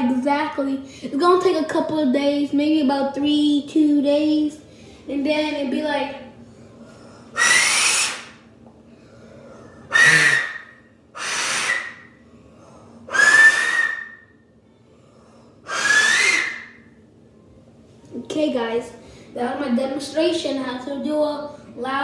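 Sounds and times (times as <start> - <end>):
two-finger whistle blasts: 7.4 - 8.3, 9.9 - 12.1, 13.1 - 14.3, 15.7 - 16.7.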